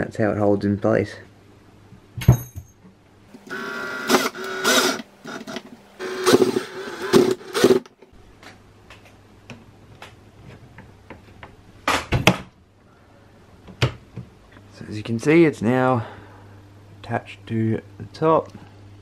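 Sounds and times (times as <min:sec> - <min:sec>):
cordless drill driving a screw: 0:03.4 - 0:07.9.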